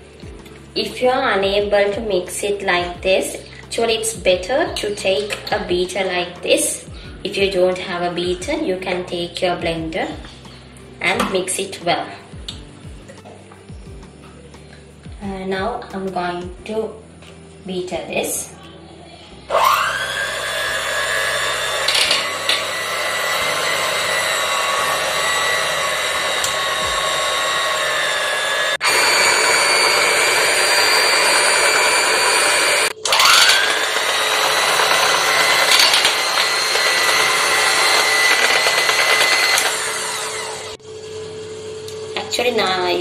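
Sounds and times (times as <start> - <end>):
electric hand mixer whining: 19.5 - 43.0.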